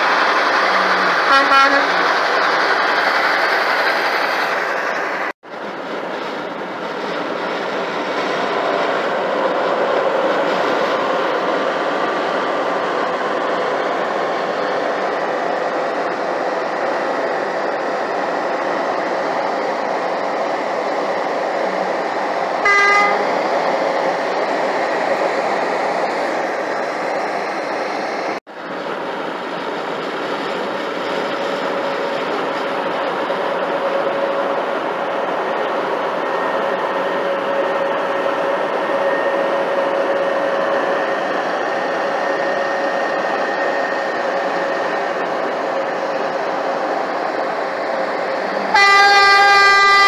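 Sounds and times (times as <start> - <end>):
car horn blast: 22.6 - 23.2, 48.8 - 50.0.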